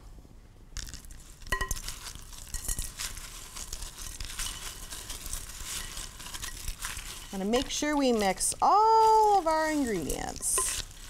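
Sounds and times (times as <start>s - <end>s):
snack mix rattling rustle: 0.8s - 11.0s
spoon clinking against glass bowl: 1.5s - 3.1s, 9.9s - 10.9s.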